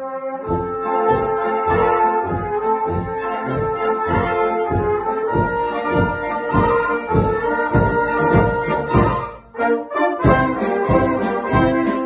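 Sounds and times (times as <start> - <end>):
brass band playing a polka: 0.0 - 12.0
tuba oom-pah bass: 0.0 - 12.0.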